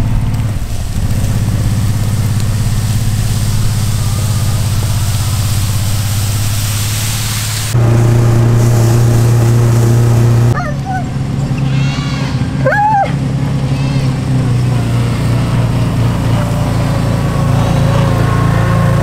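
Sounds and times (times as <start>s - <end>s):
atv engine: 0.0s - 19.0s
utility vehicle engine running: 0.0s - 19.0s
animal cries: 10.6s - 14.3s.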